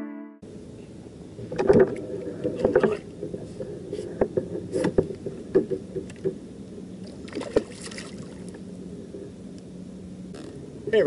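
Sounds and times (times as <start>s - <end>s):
faint steady hum: 0.0s - 11.0s
water splashing: 7.0s - 8.6s.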